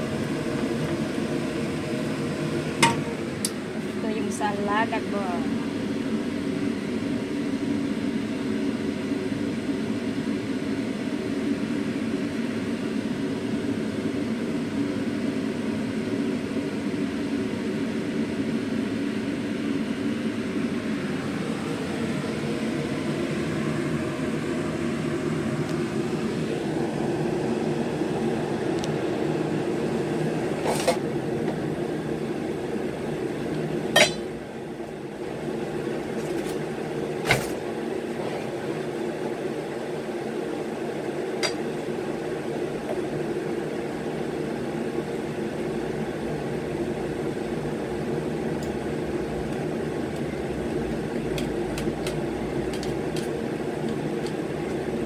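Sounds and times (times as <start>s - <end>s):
appliance motor humming: 40.5s - 55.0s.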